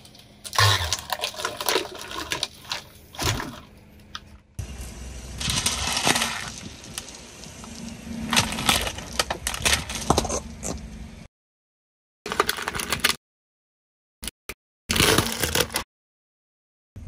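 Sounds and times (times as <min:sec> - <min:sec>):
objects cracking under car tyre: 0:05.4 - 0:11.0.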